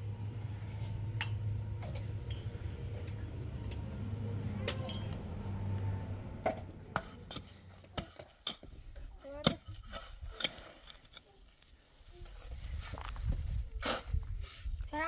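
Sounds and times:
low hum: 0:00.0 - 0:07.6.

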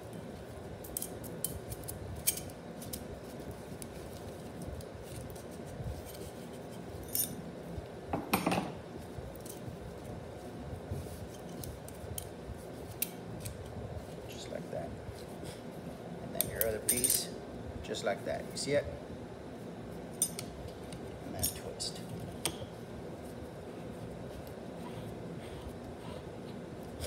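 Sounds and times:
light metal clicks and clinks: 0:16.4 - 0:17.3, 0:21.4 - 0:21.7.

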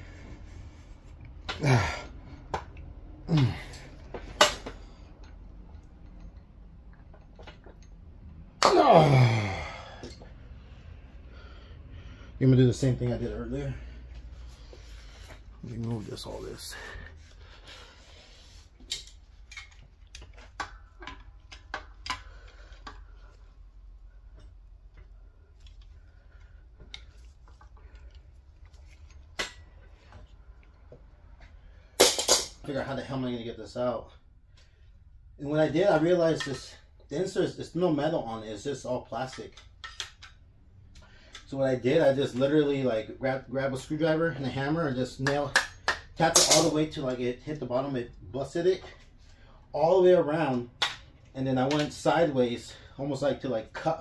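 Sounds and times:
person grunting: 0:01.5 - 0:02.1, 0:03.3 - 0:03.9, 0:08.6 - 0:10.0.

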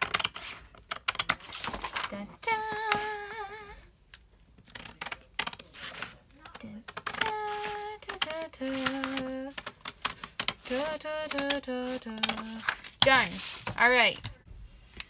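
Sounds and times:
scissors cutting paper: 0:00.0 - 0:03.3, 0:04.6 - 0:14.3
woman singing held note: 0:10.7 - 0:13.4.

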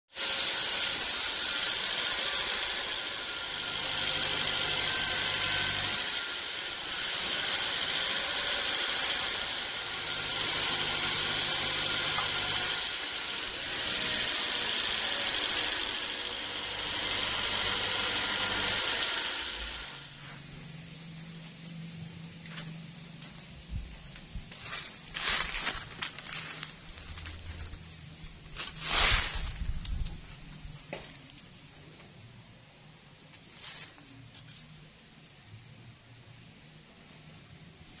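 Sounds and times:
band saw blade cutting log: 0:00.1 - 0:20.3.

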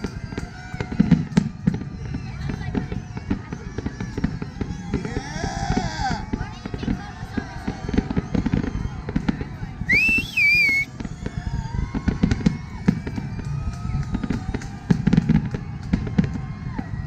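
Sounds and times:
fireworks bangs and crackles: 0:00.0 - 0:17.0
loud wavering whistle: 0:09.9 - 0:13.3.

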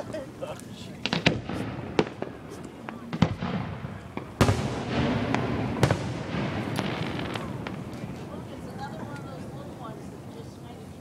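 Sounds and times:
firework shells bursting: 0:01.0 - 0:08.4.

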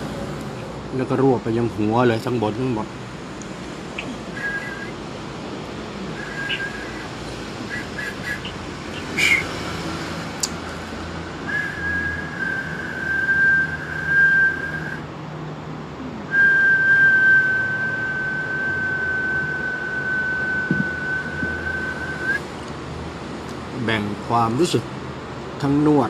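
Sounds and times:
high steady whistling tone: 0:04.0 - 0:05.0, 0:06.1 - 0:09.5, 0:11.4 - 0:15.1, 0:16.3 - 0:22.5.

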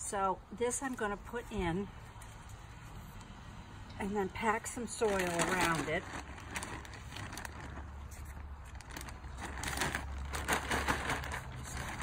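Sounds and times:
plastic bag rustling: 0:04.4 - 0:12.0.

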